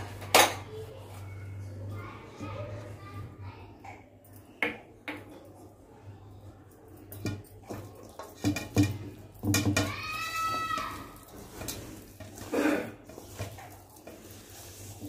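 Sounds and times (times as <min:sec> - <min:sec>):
hands mixing fish in a steel bowl: 0:00.0 - 0:03.4, 0:04.4 - 0:15.0
knocks against a steel bowl: 0:08.4 - 0:09.9.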